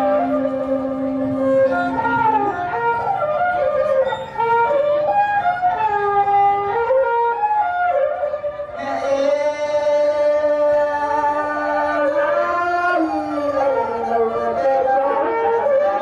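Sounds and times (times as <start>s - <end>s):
bowed fiddle melody: 0.0s - 16.0s.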